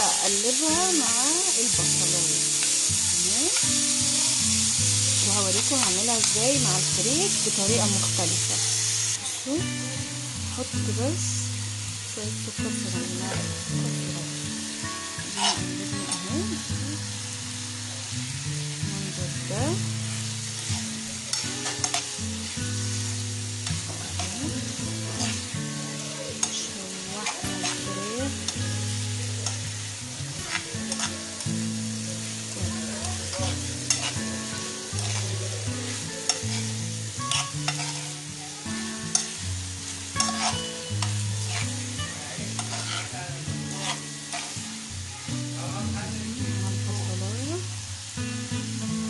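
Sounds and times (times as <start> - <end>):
food sizzling in frying pan: 0.0 - 49.0
metal spoon scraping pan: 15.2 - 16.3, 20.5 - 22.1, 25.0 - 28.6, 30.4 - 31.4, 33.1 - 38.2, 39.1 - 39.4, 40.1 - 44.6.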